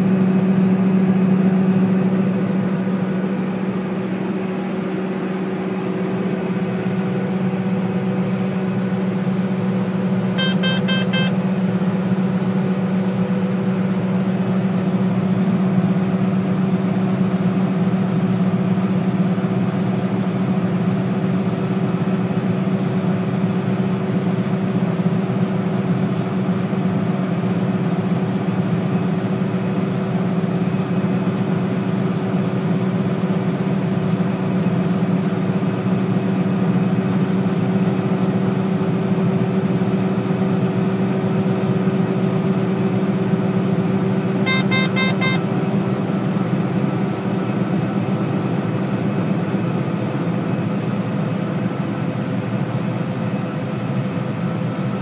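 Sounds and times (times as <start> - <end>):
combine harvester droning: 0.0 - 19.3, 38.6 - 50.8
electronic beeping: 10.4 - 11.4, 44.5 - 45.4.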